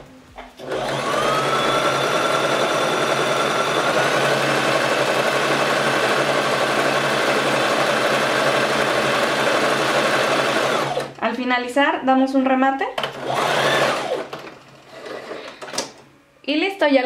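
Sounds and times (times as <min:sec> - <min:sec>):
sewing machine running: 0:00.6 - 0:11.2, 0:13.0 - 0:15.6.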